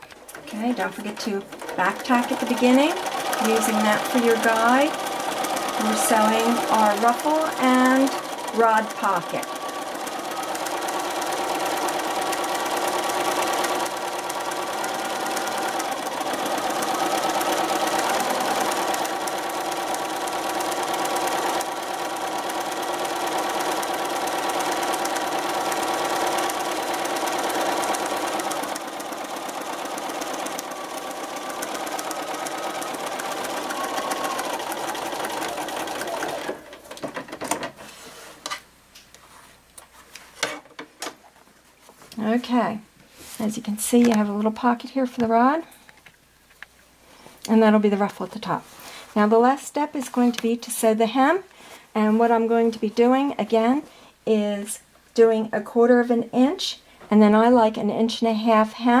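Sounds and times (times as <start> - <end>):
sewing machine stitching: 0.0 - 37.7.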